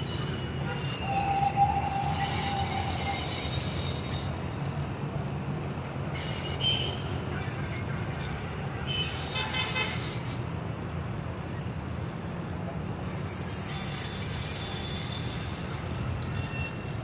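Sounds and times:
train wheel squeals: 0:00.0 - 0:04.8, 0:06.0 - 0:08.1, 0:08.7 - 0:10.9, 0:13.0 - 0:17.0
train rumbling on rails: 0:00.0 - 0:17.0.

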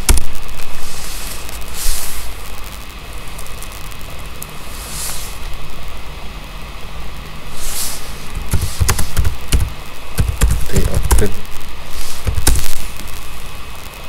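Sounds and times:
keyboard typing: 0:08.5 - 0:11.3.

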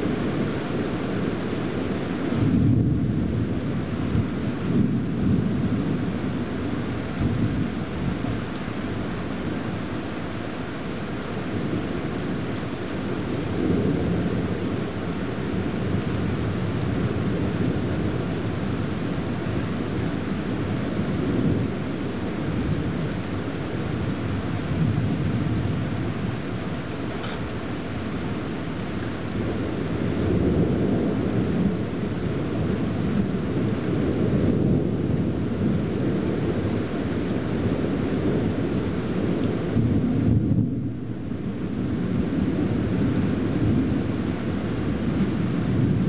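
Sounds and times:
steady rain: 0:00.0 - 0:46.0
thunder rumbling: 0:13.1 - 0:46.0.

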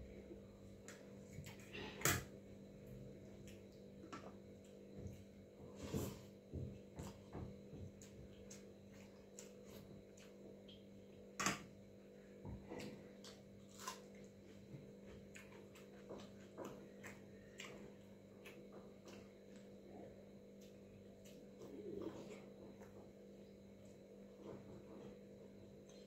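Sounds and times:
steady low hum: 0:00.0 - 0:26.0
chewing clicks and smacks: 0:07.8 - 0:11.5, 0:15.1 - 0:19.8.

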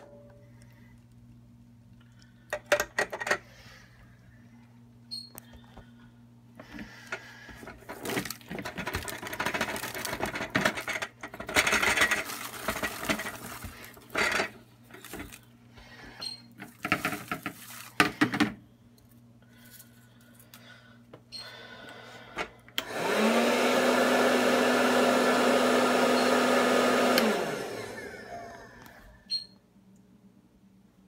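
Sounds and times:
plastic clatters: 0:07.7 - 0:15.5, 0:16.6 - 0:18.6
popcorn pouring into plastic bowl: 0:08.0 - 0:14.3, 0:16.8 - 0:18.0.

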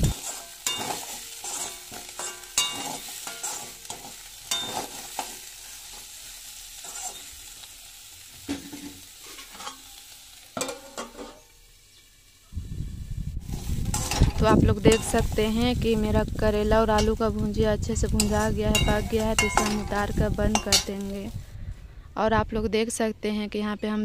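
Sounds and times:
metal ladle scraping a pan: 0:00.0 - 0:07.6, 0:08.4 - 0:11.5, 0:13.4 - 0:15.5, 0:18.1 - 0:21.2
faint sizzle: 0:00.0 - 0:21.6.

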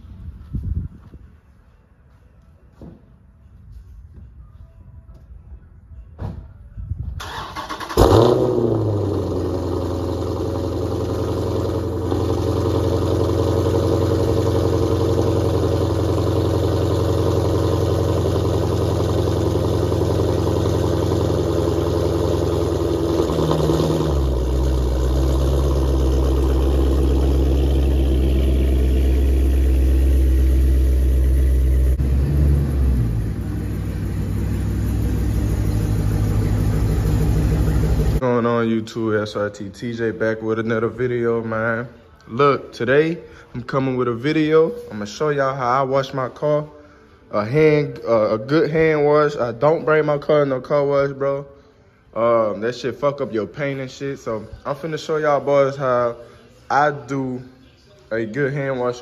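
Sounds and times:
car engine starting and idling: 0:07.1 - 0:38.2.

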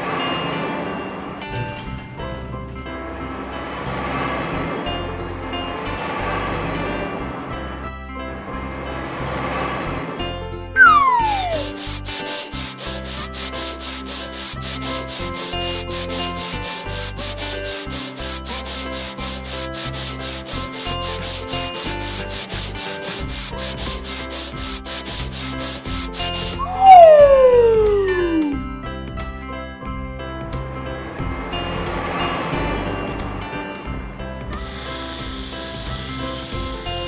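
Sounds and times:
light background music: 0:00.0 - 0:37.0
falling whistle glide: 0:10.8 - 0:11.8, 0:26.5 - 0:28.6
brush scrubbing strokes: 0:10.8 - 0:26.7, 0:34.7 - 0:37.0.

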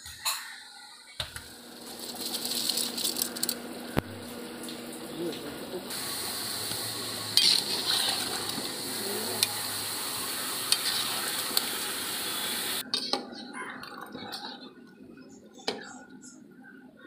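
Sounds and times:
boiling pot hiss: 0:01.2 - 0:12.8.

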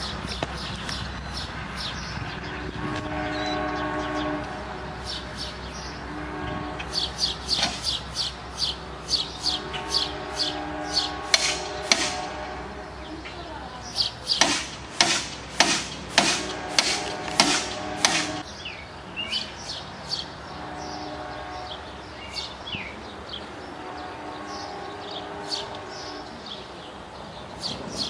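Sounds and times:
birds chirping: 0:00.0 - 0:28.0
train horn blasts: 0:02.4 - 0:07.4, 0:09.4 - 0:13.2, 0:15.6 - 0:18.5, 0:20.5 - 0:22.0, 0:23.7 - 0:26.6
crossing warning bell dinging: 0:02.8 - 0:13.5.

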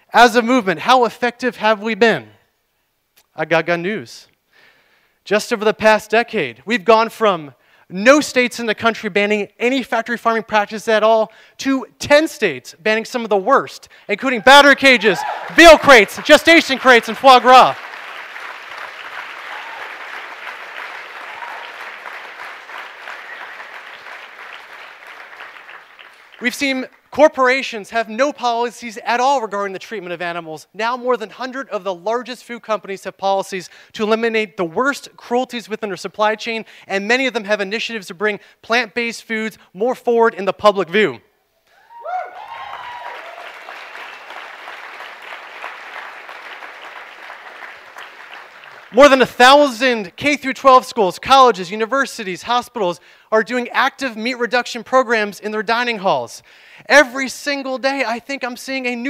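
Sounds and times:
audience applauding: 0:14.6 - 0:26.6, 0:42.3 - 0:49.0.

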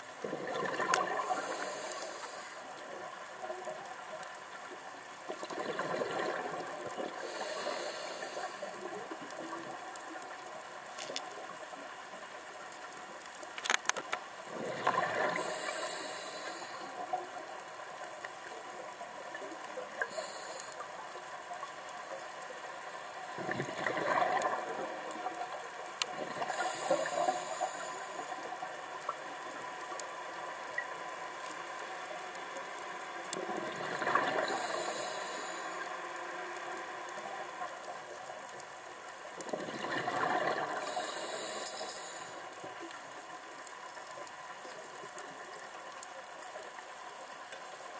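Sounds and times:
faint clicking: 0:00.0 - 0:47.9
bubbling rush: 0:00.2 - 0:01.8, 0:05.3 - 0:07.4, 0:23.4 - 0:25.0
diver breathing through regulator: 0:01.2 - 0:02.6, 0:07.2 - 0:08.8, 0:15.2 - 0:17.0, 0:20.1 - 0:20.8, 0:26.4 - 0:28.2, 0:34.4 - 0:35.8, 0:40.8 - 0:42.4.

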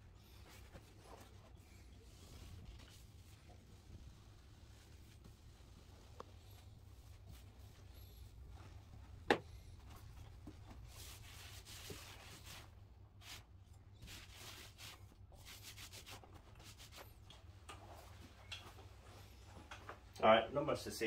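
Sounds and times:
paint roller rubbing strokes: 0:00.5 - 0:08.5, 0:10.8 - 0:13.4, 0:14.0 - 0:17.1.

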